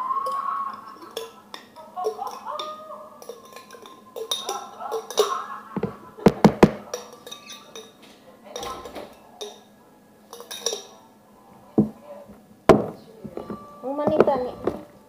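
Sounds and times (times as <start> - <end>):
spoon knocking on plastic tub: 5.8 - 7.1, 11.8 - 12.0, 12.7 - 14.9.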